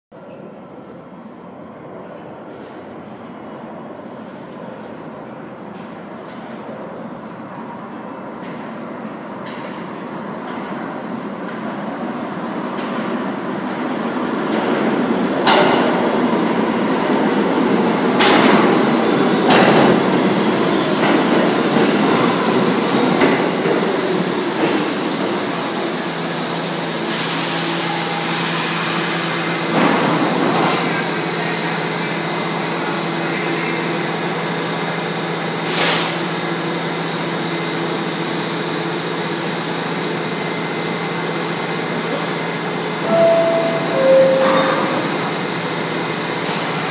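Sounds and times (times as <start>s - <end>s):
subway train wheels rumbling: 0.1s - 46.9s
train brakes squealing: 25.9s - 29.6s, 43.0s - 45.4s.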